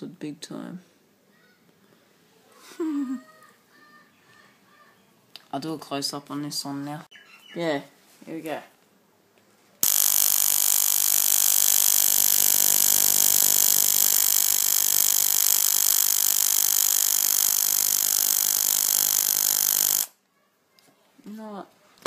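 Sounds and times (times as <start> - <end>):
electrical buzz with hiss: 9.8 - 20.1
high-voltage arcs: 9.8 - 20.2
relay chattering: 9.8 - 20.2.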